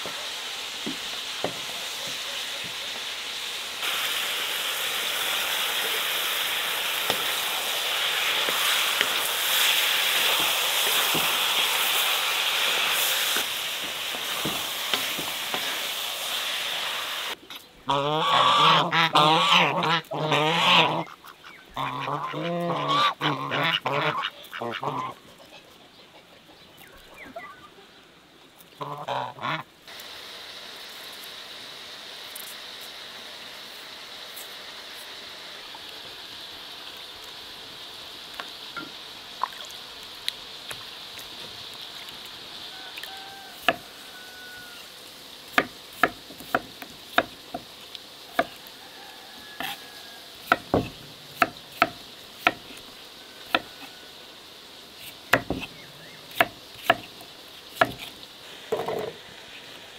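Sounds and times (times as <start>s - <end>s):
geese honking: 17.9s - 25.2s, 28.8s - 29.7s, 42.7s - 44.9s.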